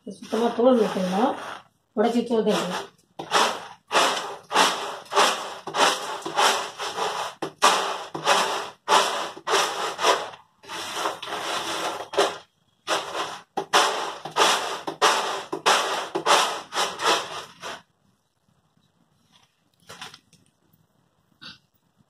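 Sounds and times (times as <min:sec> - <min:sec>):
peanuts rattling on a tray: 0:00.2 - 0:17.8.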